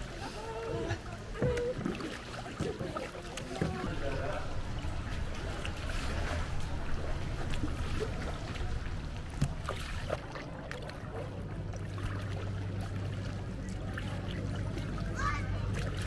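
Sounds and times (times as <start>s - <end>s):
steady low hum: 0.0s - 16.0s
water sloshing around paddle: 0.0s - 16.0s
small splashes and clicks: 0.6s - 16.0s.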